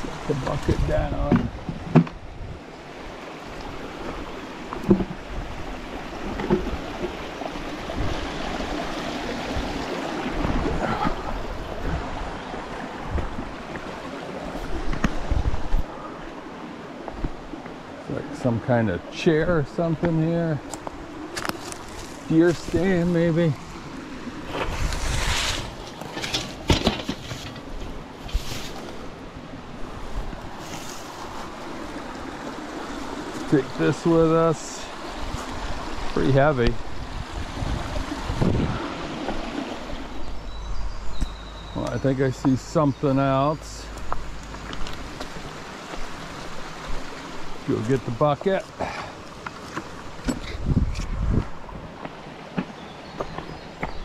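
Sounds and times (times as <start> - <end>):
creek water over stones: 0.0 - 54.0
footsteps on loose shale: 20.0 - 23.2, 43.8 - 47.1.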